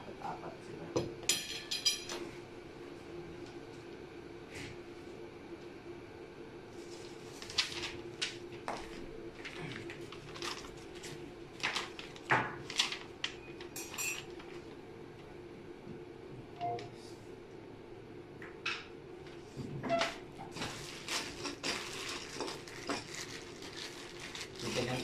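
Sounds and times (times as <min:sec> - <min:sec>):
paper sheet rustling: 0:06.8 - 0:14.7, 0:20.5 - 0:25.0.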